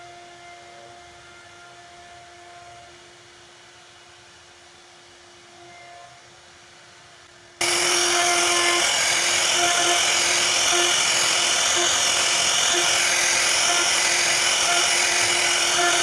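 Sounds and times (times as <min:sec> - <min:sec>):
router spindle whining while cutting: 0:07.6 - 0:16.0.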